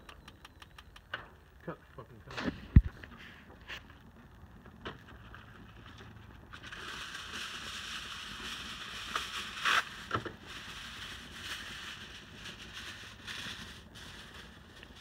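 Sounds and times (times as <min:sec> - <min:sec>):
gas grill hissing: 0:06.5 - 0:15.0.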